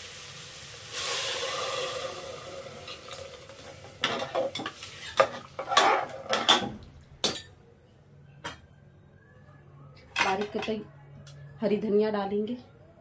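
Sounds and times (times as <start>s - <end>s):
metal spoon scraping a pot: 4.0s - 6.6s.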